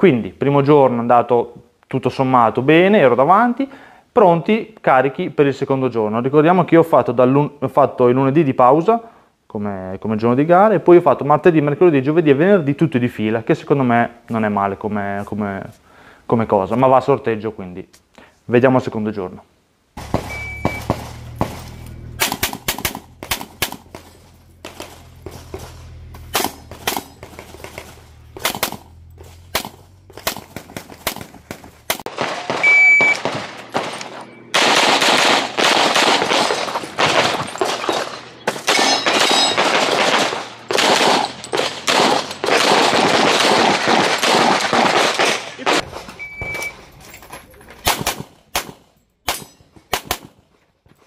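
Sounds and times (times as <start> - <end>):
pistol shots: 20.0 - 45.9, 47.8 - 50.4
shot timer beep: 20.3 - 20.9, 32.6 - 33.2, 46.2 - 46.8.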